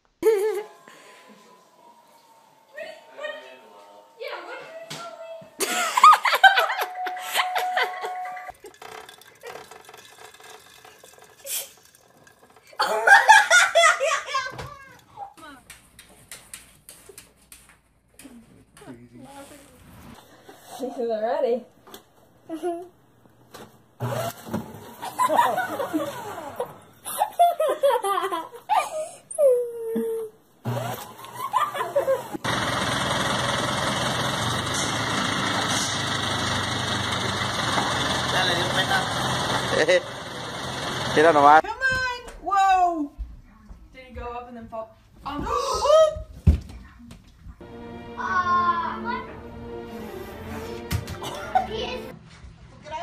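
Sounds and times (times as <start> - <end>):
people giggling: 0.2 - 0.8, 5.6 - 8.8, 12.8 - 14.9, 25.0 - 29.2, 31.2 - 32.4, 51.2 - 52.0
person giggling and laughing: 0.2 - 0.8, 12.8 - 14.6, 22.5 - 22.9
faint clattery noise: 7.8 - 12.8.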